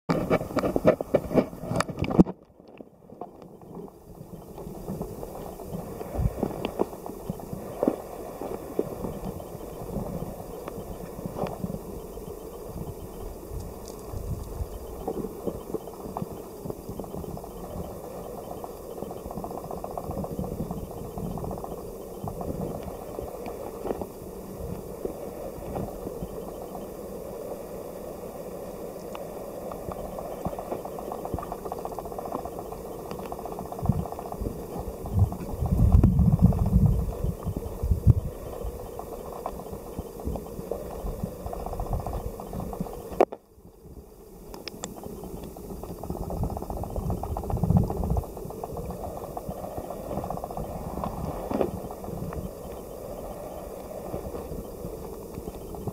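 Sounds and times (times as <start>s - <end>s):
small clicks: 29.0s - 37.6s, 44.5s - 52.9s.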